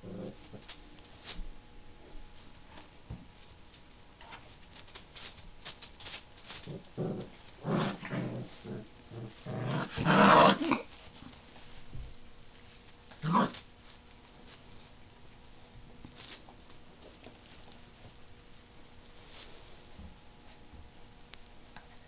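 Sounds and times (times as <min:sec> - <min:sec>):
puppies growling: 0:00.0 - 0:00.6, 0:06.5 - 0:11.4, 0:13.1 - 0:13.6.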